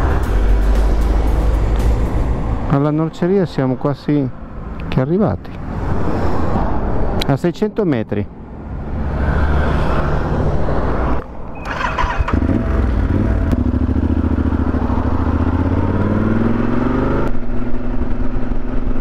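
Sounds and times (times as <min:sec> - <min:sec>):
motorcycle engine accelerating: 0:11.6 - 0:19.0.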